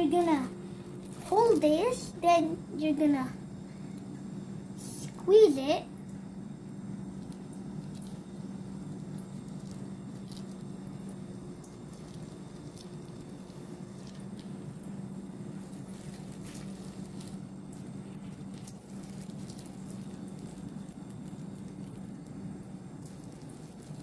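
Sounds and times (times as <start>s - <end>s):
plastic bag crinkling: 0.0s - 2.1s, 7.2s - 24.0s
sauce squishing: 7.0s - 24.0s.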